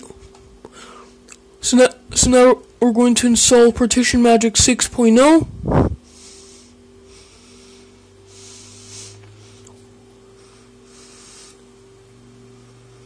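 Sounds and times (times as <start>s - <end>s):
desktop computer fans humming: 0.0s - 13.0s
soft breathy hisses: 10.3s - 11.6s.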